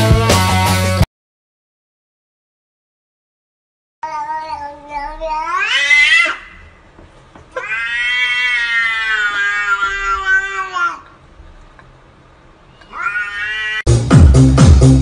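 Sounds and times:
cat meowing: 4.0s - 6.7s, 7.6s - 11.2s, 12.7s - 13.9s.

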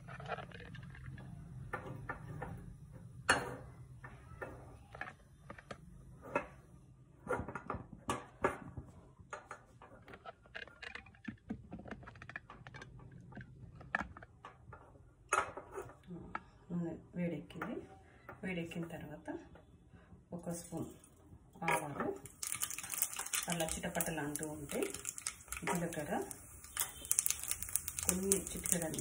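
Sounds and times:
oil heating with light clicks: 22.2s - 29.0s.

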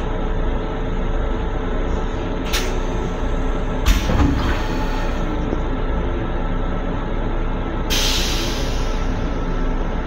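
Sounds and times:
electric railcar running noise: 0.0s - 10.0s
thump and rattle: 3.8s - 4.6s.

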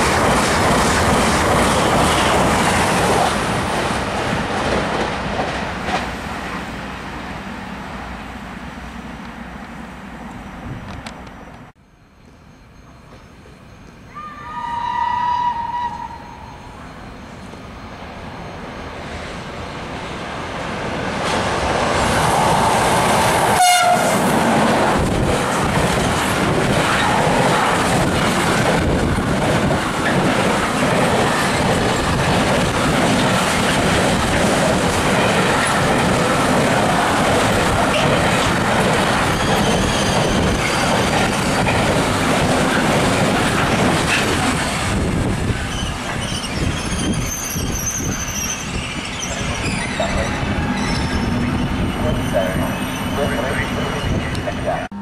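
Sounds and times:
train wheels rumbling on rail: 0.0s - 11.8s, 15.5s - 55.0s
wheel squeals: 39.2s - 41.9s, 45.6s - 54.4s.

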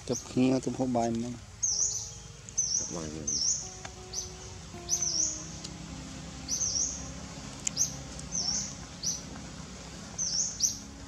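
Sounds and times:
bird chirping: 0.0s - 11.0s.

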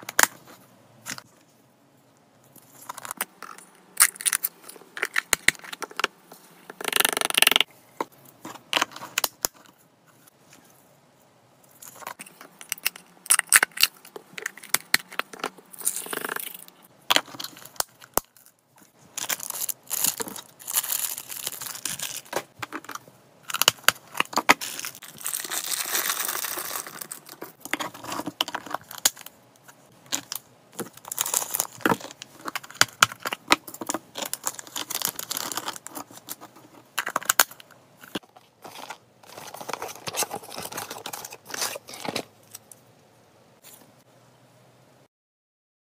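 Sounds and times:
plastic packaging crinkling: 19.1s - 29.3s, 30.1s - 42.6s.

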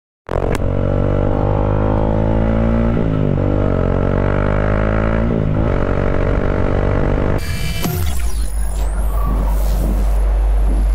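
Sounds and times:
motorcycle engine accelerating: 0.3s - 8.1s.

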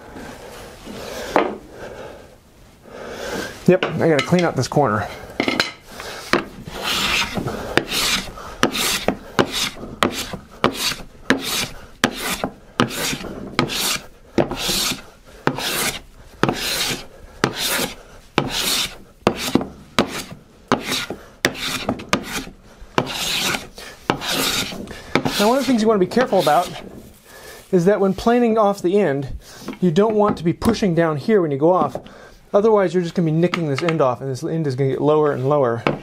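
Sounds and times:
bench plane shaving wood: 6.2s - 26.9s.

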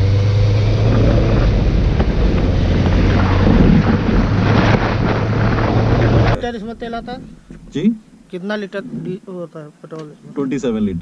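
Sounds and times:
motorcycle engine running: 0.0s - 6.4s
wind noise on microphone: 0.0s - 6.4s.

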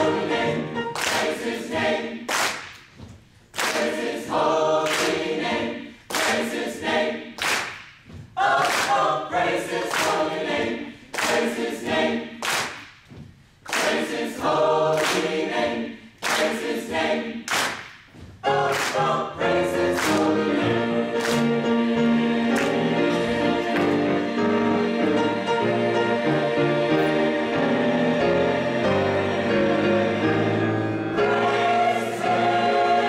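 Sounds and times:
choir singing gospel song: 0.0s - 2.9s, 3.5s - 12.9s, 13.5s - 33.0s
hand claps: 2.3s - 3.0s, 3.6s - 4.1s, 4.8s - 5.3s, 6.1s - 6.6s, 7.4s - 9.1s, 9.8s - 10.3s, 11.2s - 14.3s, 16.2s - 16.8s, 17.5s - 19.1s, 20.0s - 20.3s.

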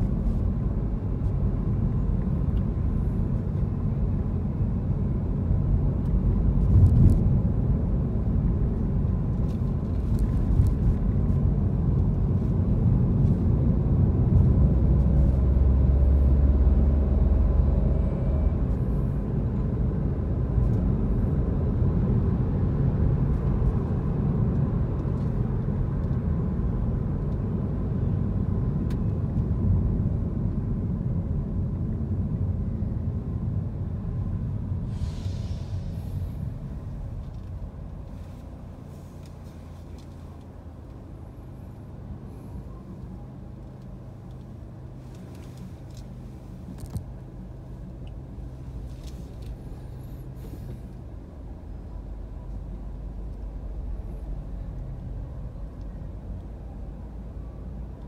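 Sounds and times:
engine hum: 0.0s - 58.0s
road and engine rumble in car: 0.0s - 58.0s
short hiss: 34.9s - 36.5s.

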